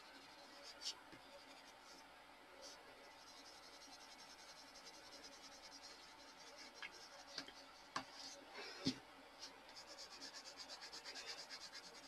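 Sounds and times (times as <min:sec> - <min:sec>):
pencil scratching on paper: 0:02.6 - 0:08.4, 0:09.7 - 0:12.0.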